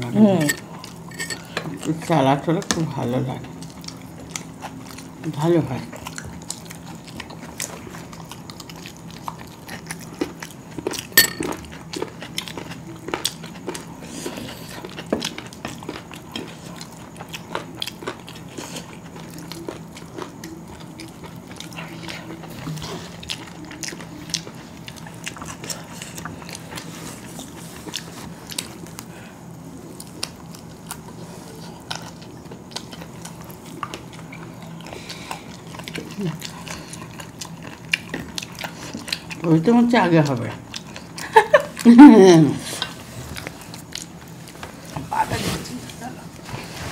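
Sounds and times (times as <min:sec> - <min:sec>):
faint low hum: 0:00.0 - 0:46.9
chewing and mouth noises: 0:00.4 - 0:46.6.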